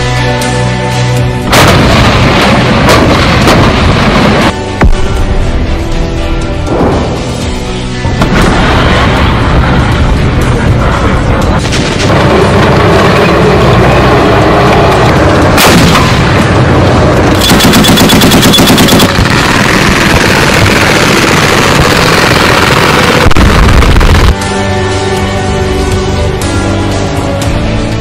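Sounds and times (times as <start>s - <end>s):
explosions: 1.5s - 5.1s, 8.1s - 13.8s, 15.5s - 24.4s
automatic machine-gun fire: 17.4s - 24.3s.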